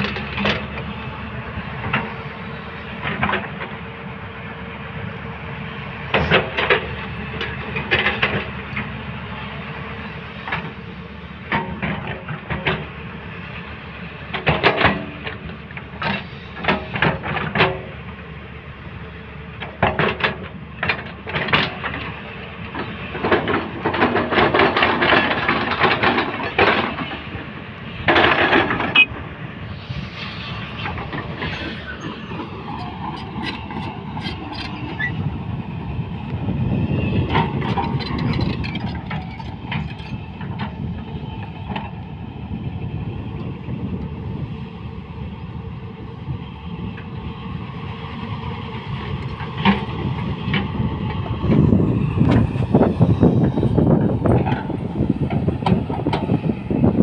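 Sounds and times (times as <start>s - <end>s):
earthmoving machine engine drone: 24.4s - 57.0s
metallic clanking and rattling: 37.2s - 40.8s.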